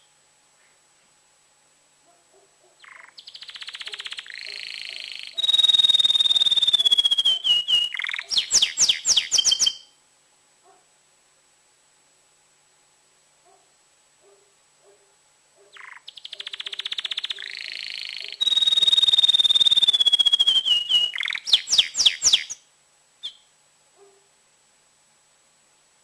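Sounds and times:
canary singing: 2.8s - 10.0s, 15.7s - 22.6s, 23.2s - 23.5s
short bird chirp: 15.8s - 22.6s.

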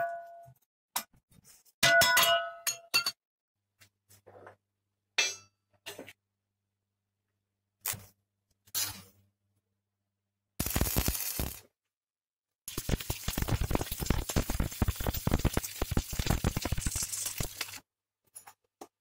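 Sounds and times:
welding arc crackle: 10.6s - 11.7s, 12.7s - 17.8s.

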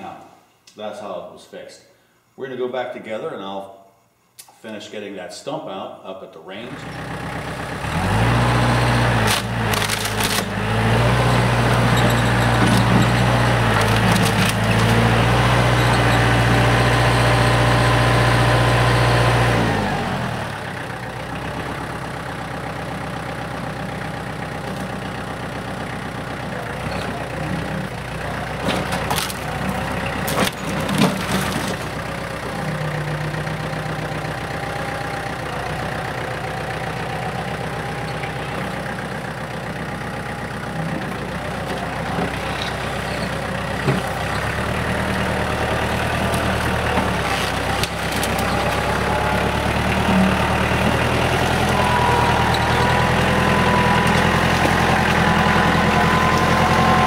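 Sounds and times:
tractor diesel engine running: 6.7s - 57.0s
sharp cracks and knocks: 9.2s - 10.6s, 12.6s - 15.1s, 28.6s - 29.5s, 30.2s - 32.0s, 46.3s - 48.9s.

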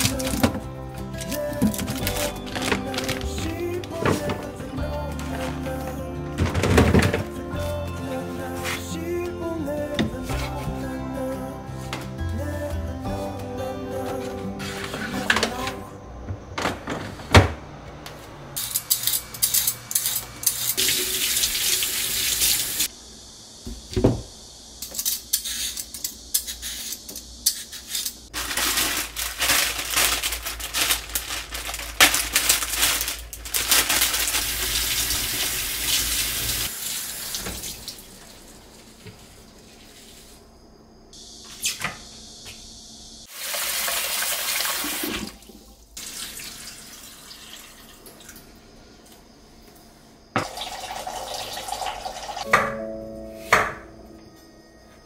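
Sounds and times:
faucet water splashing into sink: 20.8s - 22.9s, 34.5s - 38.4s, 43.4s - 48.4s, 50.4s - 52.4s
water poured from pot into sink: 43.3s - 48.4s, 50.4s - 52.4s.

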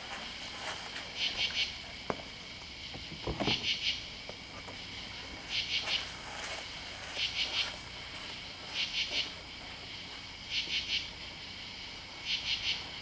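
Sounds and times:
katydid rasping calls: 1.2s - 1.8s, 5.4s - 6.2s, 8.6s - 9.4s, 12.2s - 12.9s.

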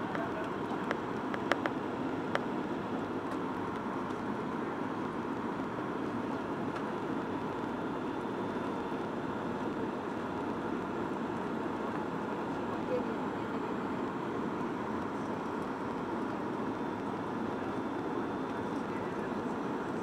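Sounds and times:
airliner cabin engine rush: 0.0s - 20.0s.

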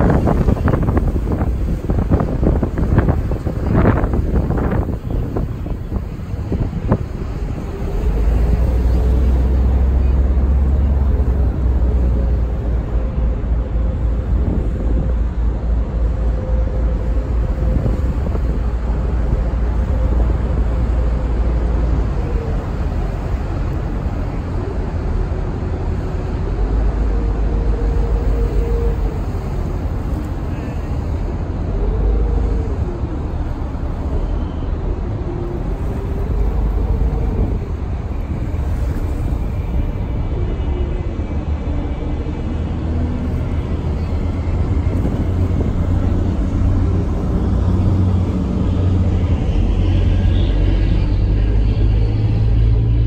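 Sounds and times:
boat engine drone: 0.0s - 53.0s
wind buffeting microphone: 0.0s - 53.0s.

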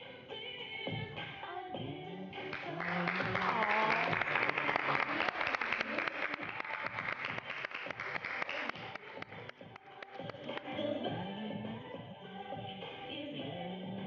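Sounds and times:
crowd applauding: 2.5s - 10.7s.

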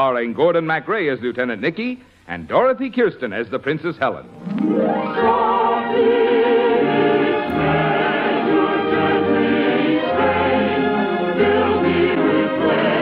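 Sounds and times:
orchestra playing: 4.2s - 13.0s
choir singing with vibrato: 4.6s - 13.0s.

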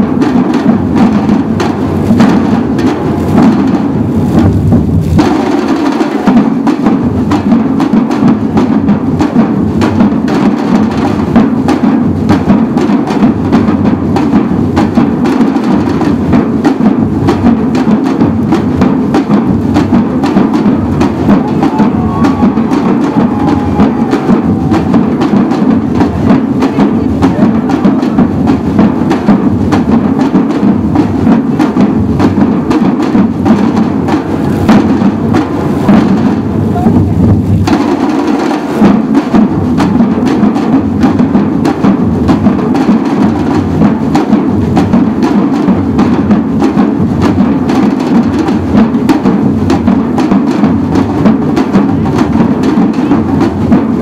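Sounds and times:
drum group playing: 0.0s - 54.0s.

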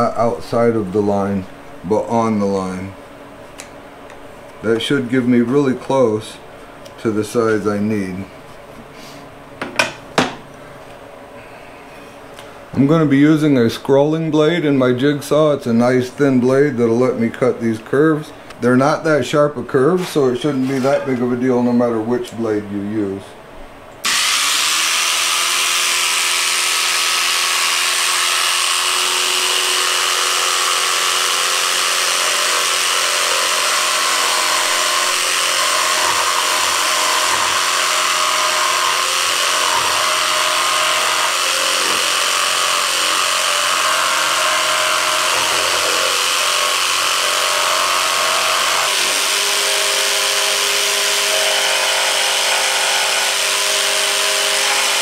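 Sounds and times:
jigsaw cutting plywood: 24.0s - 55.0s.

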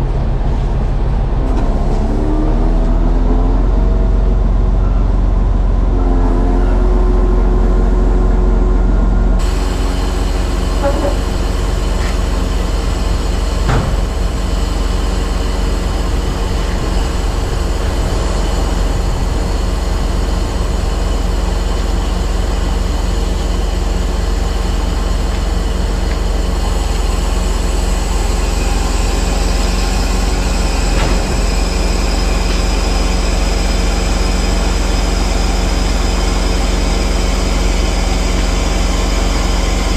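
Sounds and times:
diesel truck engine running: 0.0s - 39.9s
crane hydraulics working: 9.4s - 39.9s.

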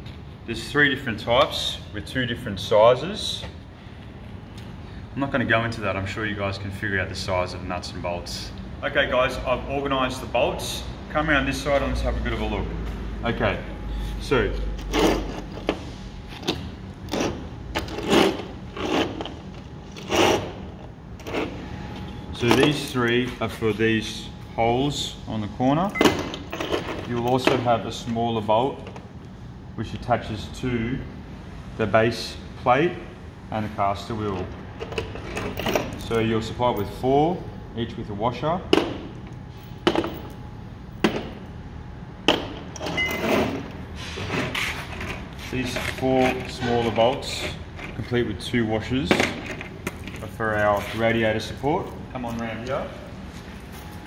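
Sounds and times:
jingling rattle of metal parts: 26.0s - 27.6s.

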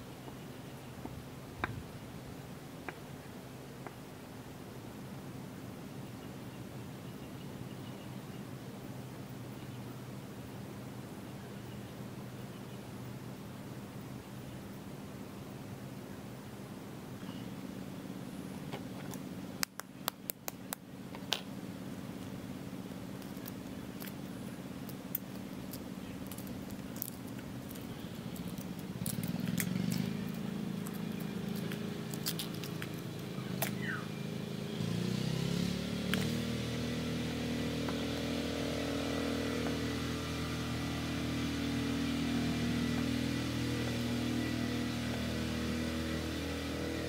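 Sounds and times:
engine humming: 0.0s - 47.0s
small shell clicks: 19.0s - 21.5s
eggshell cracking: 23.2s - 24.2s, 24.8s - 33.3s.

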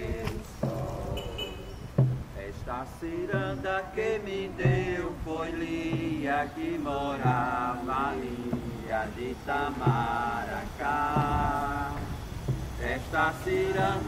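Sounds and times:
low thud keeping beat: 0.0s - 14.0s
voices singing chant-like song: 0.0s - 14.0s.

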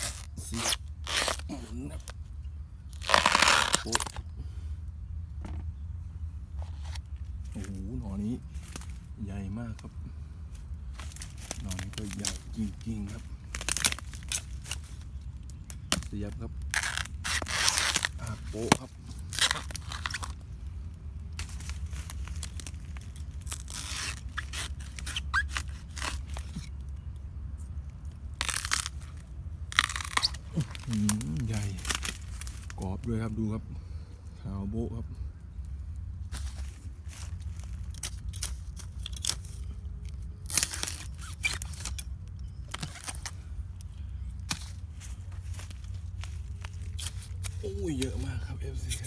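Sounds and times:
knife cutting bamboo shoot: 0.0s - 2.2s, 2.9s - 4.3s, 10.9s - 20.4s, 23.4s - 26.8s, 28.4s - 32.8s, 36.3s - 39.7s, 40.4s - 43.4s, 44.4s - 44.8s
dry leaves rustling: 0.0s - 4.3s, 6.4s - 33.4s, 35.2s - 49.0s.

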